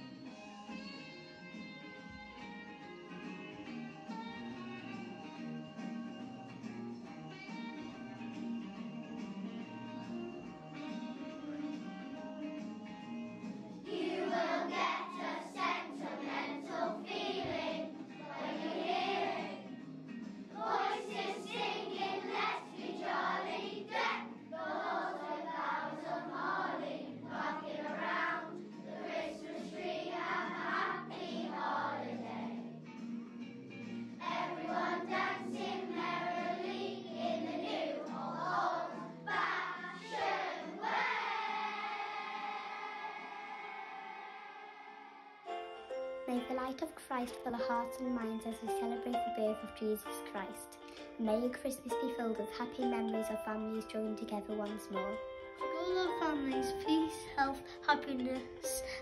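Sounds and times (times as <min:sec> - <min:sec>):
children singing in unison: 0:13.9 - 0:19.7, 0:20.5 - 0:32.7, 0:34.2 - 0:45.2
musical accompaniment: 0:38.7 - 0:59.0.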